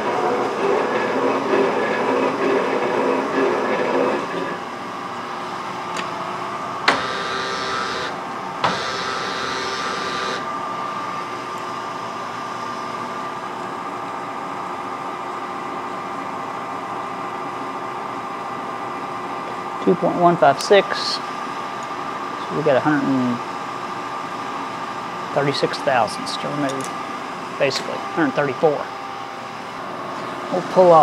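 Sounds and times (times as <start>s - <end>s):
motor hum: 4.7s - 14.3s.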